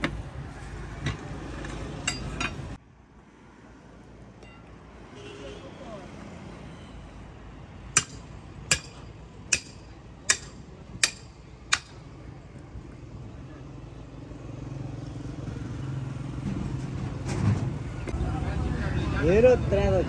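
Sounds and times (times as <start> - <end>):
vehicle engine humming: 0.0 - 20.0
hammer striking metal: 2.0 - 2.6, 7.9 - 12.0.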